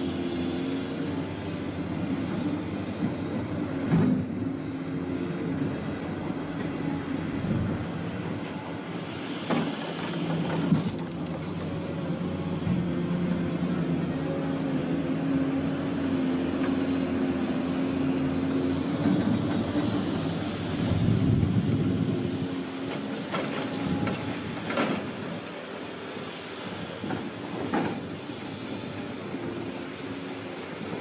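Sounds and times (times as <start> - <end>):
diesel engine running: 0.0 - 31.0.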